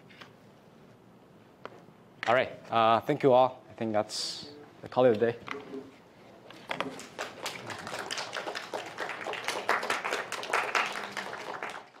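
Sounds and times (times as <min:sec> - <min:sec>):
audience applause: 0:06.7 - 0:12.0.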